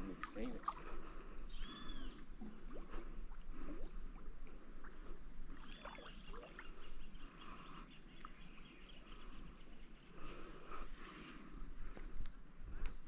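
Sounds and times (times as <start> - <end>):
water splashing around wader: 0.0 - 7.0
bird whistling: 1.5 - 2.2.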